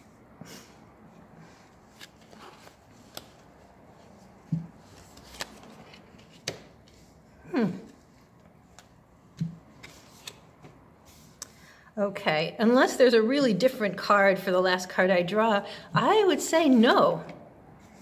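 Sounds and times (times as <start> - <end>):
cards clicking and thudding on table: 6.3 - 6.8.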